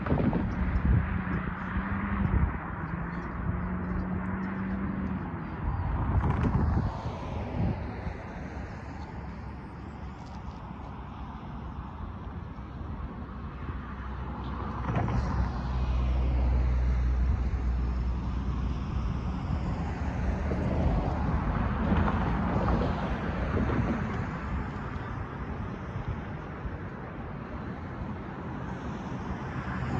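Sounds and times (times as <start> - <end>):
cars crossing railroad crossing: 0.0 - 29.9
vehicle engine hum: 0.0 - 29.9.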